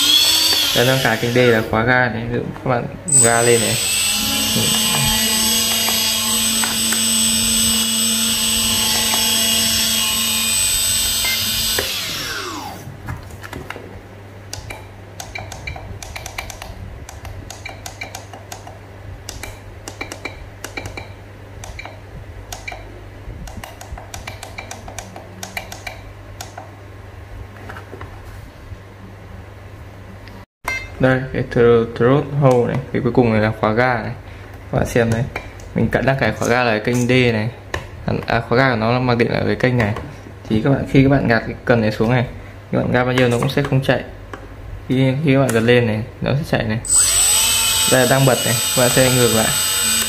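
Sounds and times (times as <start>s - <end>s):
electric motor propeller whine: 0.0s - 1.7s, 3.1s - 12.9s, 46.9s - 50.0s.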